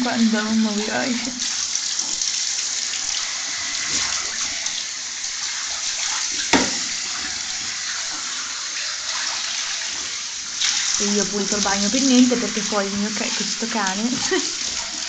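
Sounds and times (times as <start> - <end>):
shower spraying water: 0.0 - 15.0
brief knock: 6.5 - 6.9.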